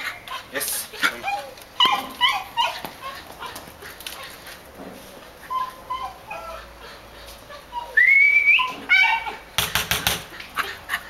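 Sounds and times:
puppy whining and yipping: 0:00.0 - 0:04.4, 0:05.4 - 0:09.5.

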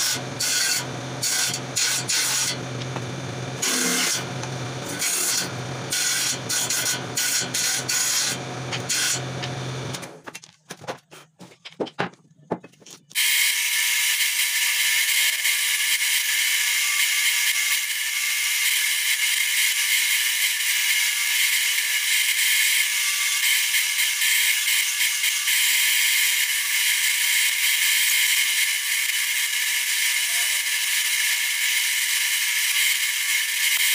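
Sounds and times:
disc sander whining: 0:00.0 - 0:10.2
power saw cutting wood: 0:00.0 - 0:10.2, 0:13.2 - 0:33.9.

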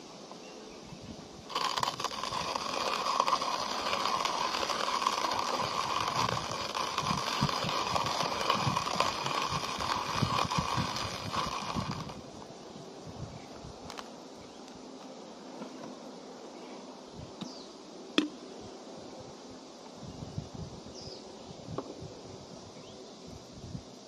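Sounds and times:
coffee grinder crunching beans: 0:01.5 - 0:12.3.

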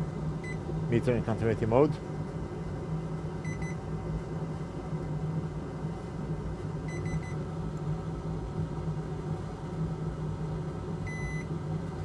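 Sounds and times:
steady low hum: 0:00.0 - 0:12.0
multimeter beeping: 0:06.9 - 0:07.4, 0:11.1 - 0:11.4.

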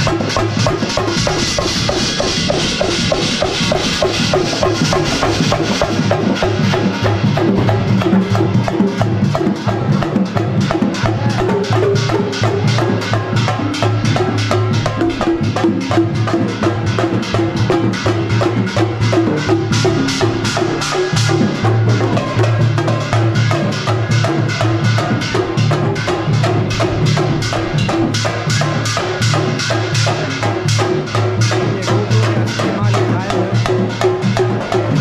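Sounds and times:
fast percussion beat: 0:00.0 - 0:35.0
repeating low bass line: 0:25.0 - 0:30.4.

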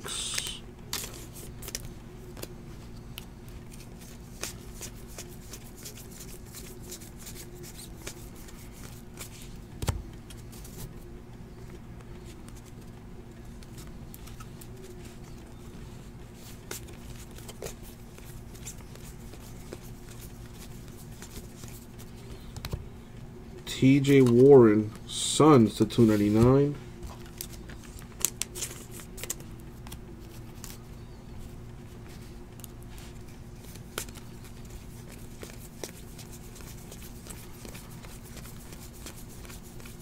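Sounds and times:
steady low hum: 0:00.0 - 0:40.0
trading cards clicking and sliding: 0:00.2 - 0:22.8, 0:32.0 - 0:40.0.

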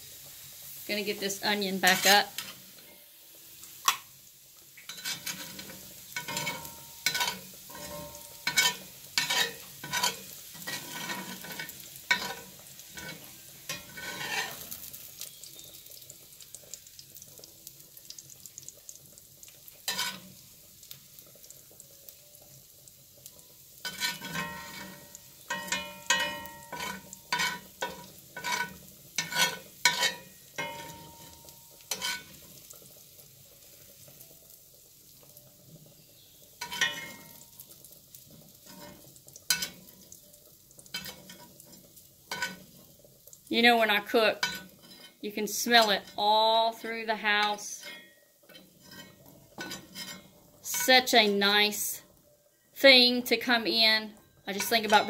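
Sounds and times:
oil sizzling faintly: 0:00.0 - 0:55.0
metal spatula scraping skillet: 0:01.8 - 0:03.1, 0:04.9 - 0:15.4, 0:19.8 - 0:20.4, 0:23.8 - 0:32.8, 0:36.6 - 0:37.5, 0:38.4 - 0:40.0, 0:40.9 - 0:42.9, 0:44.1 - 0:46.3, 0:47.1 - 0:51.5, 0:54.5 - 0:55.0.

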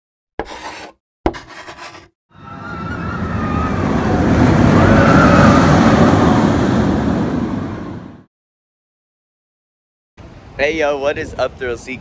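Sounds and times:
roller coaster train rumble: 0:02.4 - 0:08.2.

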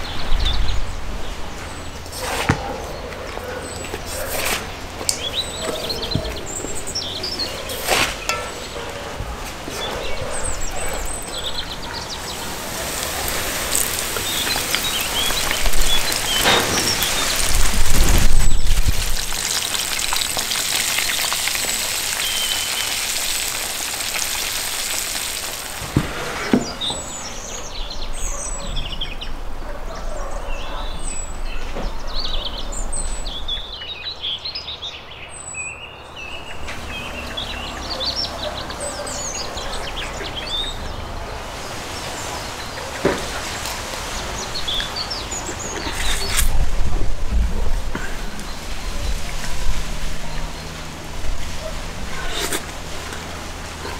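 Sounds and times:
small birds chirping: 0:00.0 - 0:25.8, 0:26.4 - 0:46.6
fish sizzling in hot oil: 0:12.4 - 0:26.0.

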